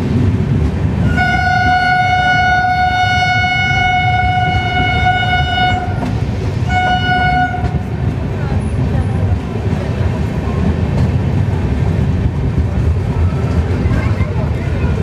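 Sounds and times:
train coaches rumbling: 0.0 - 15.0
train horn blast: 1.0 - 7.8.

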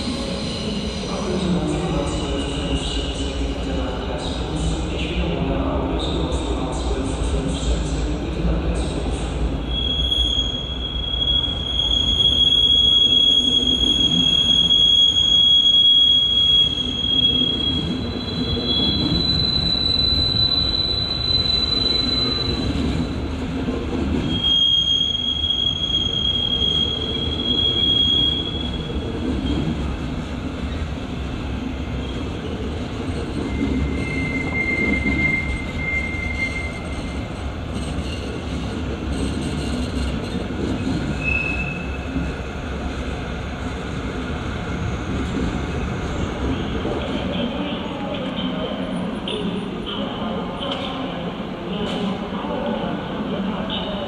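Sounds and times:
train wheels squealing: 9.1 - 23.3, 24.1 - 29.8, 33.1 - 42.3
wheels rumbling on rails: 26.2 - 48.3.

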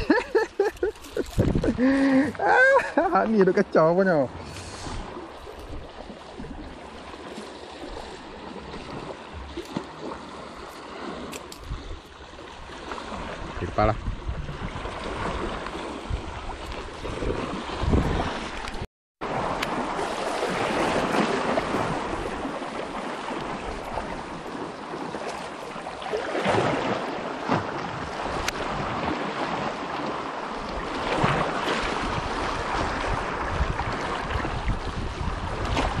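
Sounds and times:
wind buffeting microphone: 0.0 - 3.4, 11.6 - 24.8, 27.6 - 36.0
sea waves splashing over rocks: 0.0 - 36.0.

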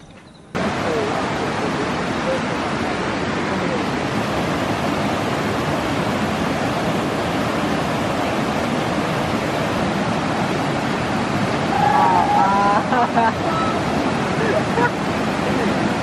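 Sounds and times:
stream rushing over rocks: 0.5 - 16.0.

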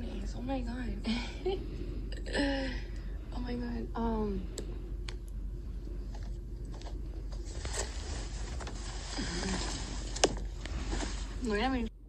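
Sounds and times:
clothes rustling: 6.1 - 11.9.

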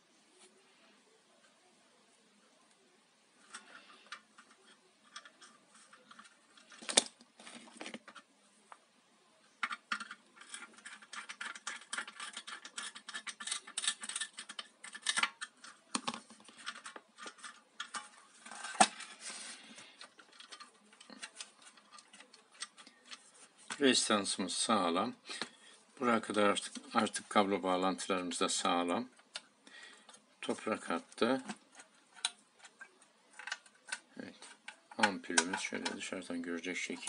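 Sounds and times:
scratching and little clicks: 9.6 - 19.1, 19.9 - 23.8.

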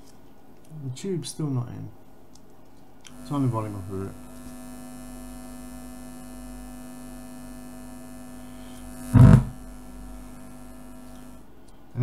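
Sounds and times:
steady electrical hum: 0.0 - 12.0
loud thump: 9.1 - 9.6.

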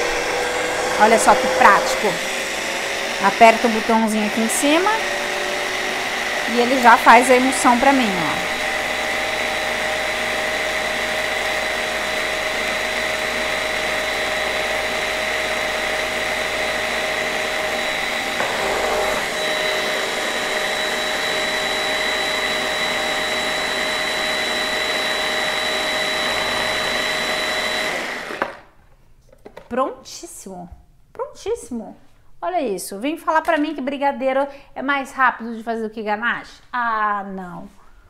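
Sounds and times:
food processor motor whine: 0.0 - 28.7.

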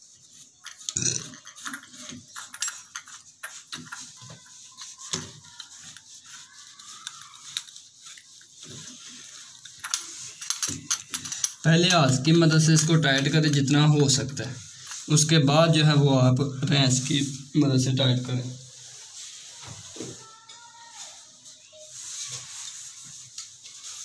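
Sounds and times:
metal fittings clinking and scraping: 0.4 - 15.3.

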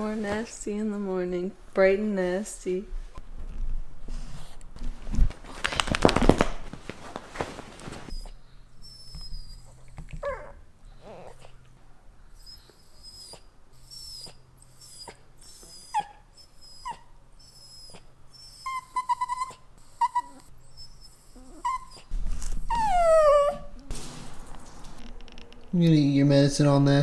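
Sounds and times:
rustling: 3.0 - 8.3, 22.0 - 25.8
dog whining and whimpering: 8.1 - 11.6, 12.3 - 23.9.

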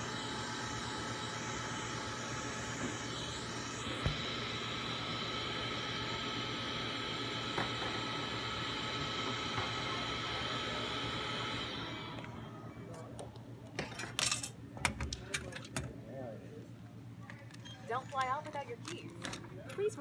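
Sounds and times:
key-cutting machine whine: 0.0 - 13.2.

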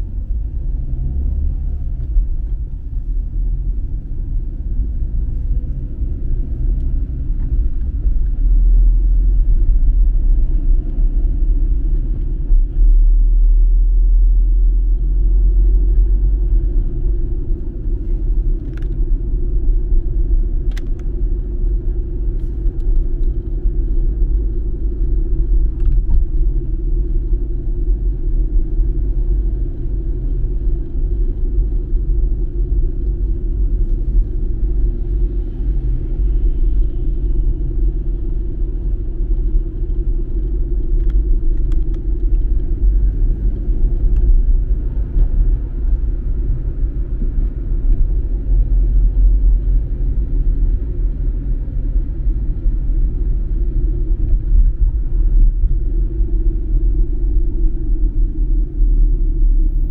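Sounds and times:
car cabin road and engine rumble: 0.0 - 59.9.

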